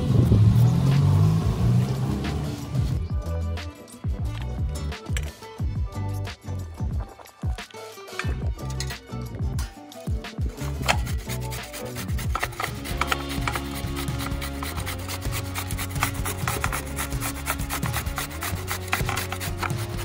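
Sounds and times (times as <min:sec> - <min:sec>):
vegetable rasped on a metal grater: 0:10.7 - 0:20.0.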